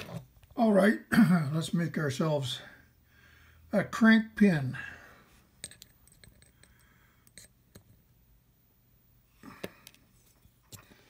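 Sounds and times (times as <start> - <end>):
metal screws clicking in glass jar: 5.6 - 7.6.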